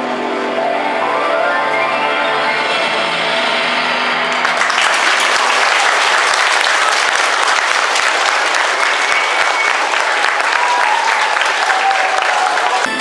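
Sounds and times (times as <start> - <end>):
audience clapping: 4.3 - 13.0.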